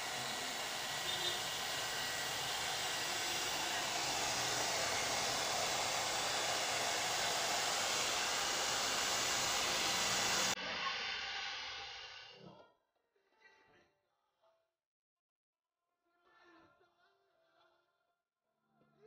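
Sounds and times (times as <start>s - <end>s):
hair dryer blowing: 0.0s - 12.4s.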